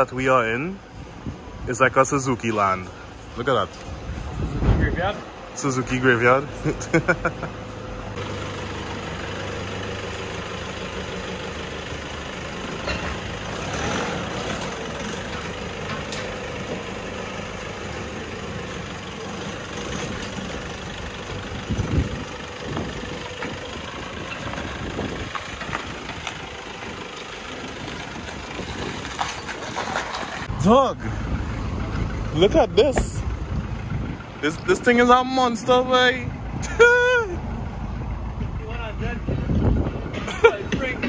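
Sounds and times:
vehicle engine running: 0:02.6 - 0:41.0.

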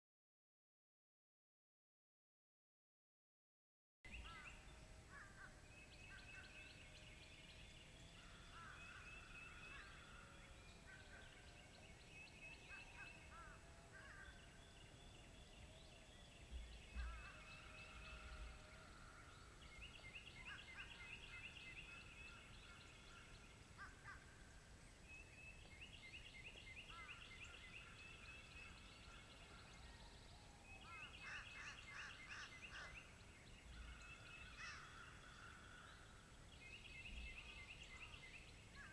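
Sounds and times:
songbirds singing and trilling: 0:04.1 - 0:38.9.

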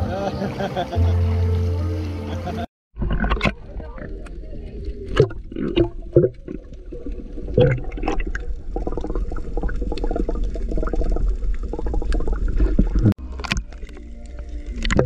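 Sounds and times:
water splashes: 0:00.0 - 0:15.0
low underwater rumble: 0:00.8 - 0:15.0
water gurgling and bubbling: 0:03.0 - 0:15.0.

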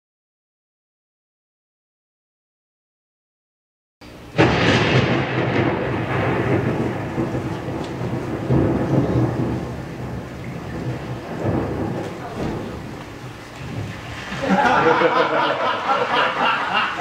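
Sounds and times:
rain: 0:04.3 - 0:17.0
thunder rumbling: 0:04.3 - 0:17.0.

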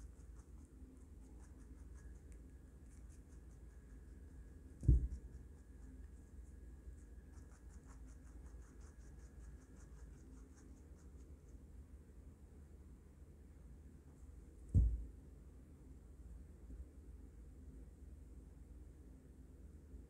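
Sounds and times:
rabbit chewing crunches: 0:00.0 - 0:11.7
low thump: 0:04.8 - 0:05.4, 0:14.7 - 0:15.1.

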